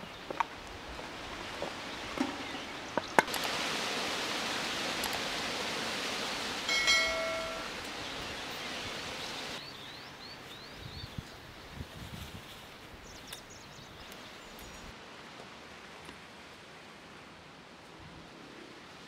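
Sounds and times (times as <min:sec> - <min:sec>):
steady outdoor hiss: 0:00.0 - 0:19.0
steady pitched tone: 0:06.7 - 0:07.7.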